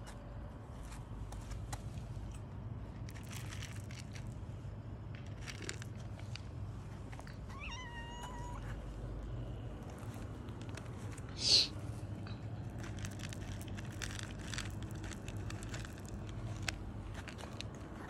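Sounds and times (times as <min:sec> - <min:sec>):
cat kibble rattling onto concrete: 0:05.2 - 0:06.4, 0:12.8 - 0:17.8
cat meowing: 0:07.5 - 0:08.8.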